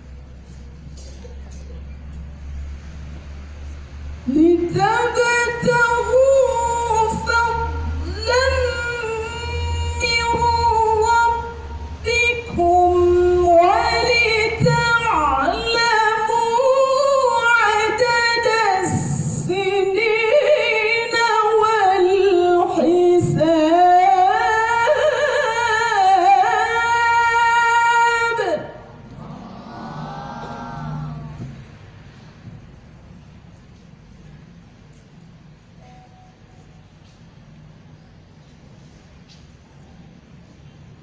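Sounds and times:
woman reciting melodically over loudspeakers: 3.8s - 32.7s
low hum: 28.8s - 35.0s.

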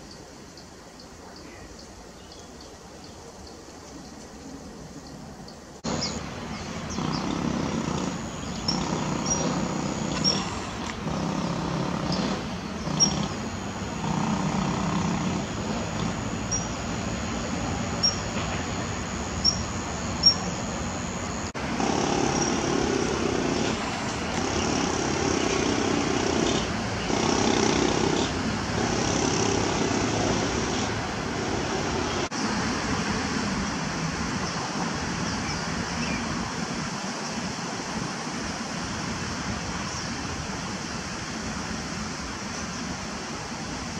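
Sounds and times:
road traffic noise: 5.2s - 43.9s
high bird calls: 5.8s - 21.5s, 22.1s - 27.5s.

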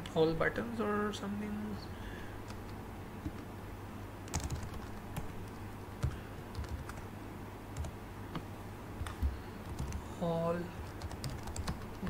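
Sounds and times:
computer keyboard keystrokes: 4.3s - 7.0s, 9.0s - 10.0s, 10.8s - 12.0s.

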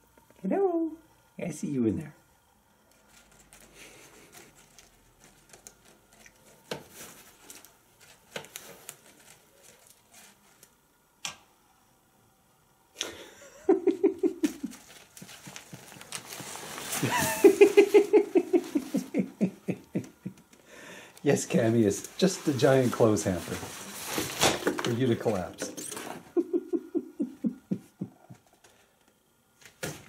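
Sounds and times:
person laughing: 13.0s - 15.6s, 16.9s - 20.6s, 26.1s - 28.6s
nylon tent rustling: 14.5s - 19.2s, 21.3s - 26.2s.

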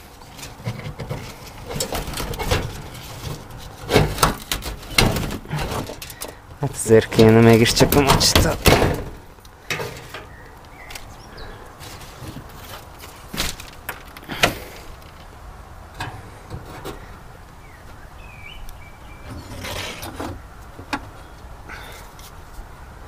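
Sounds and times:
vines rustling being pulled: 0.0s - 15.5s.

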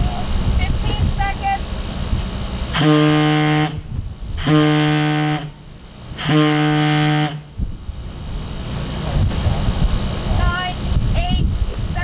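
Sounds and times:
low-pitched warning horn blasts: 2.7s - 7.6s.

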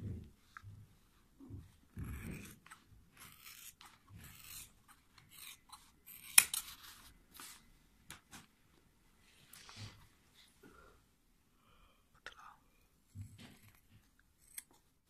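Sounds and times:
scissors snipping rubber: 2.0s - 6.8s.

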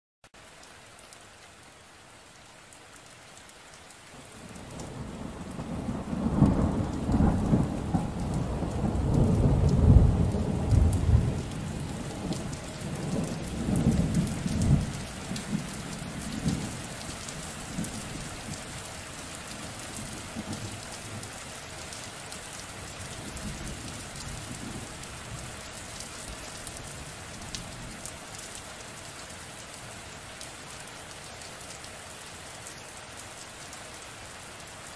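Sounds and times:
steady rain: 0.2s - 34.9s
thunder rolling: 4.8s - 15.7s.

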